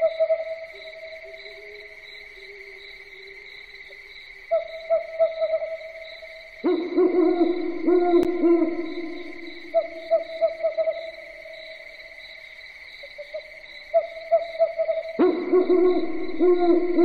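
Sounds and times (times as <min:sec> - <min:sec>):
owl hooting: 0:06.6 - 0:11.3, 0:13.9 - 0:17.0.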